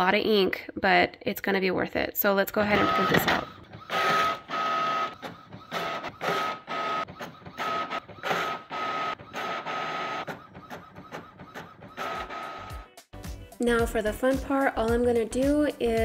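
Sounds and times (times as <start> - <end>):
inkjet printer head whining: 2.6 - 12.8.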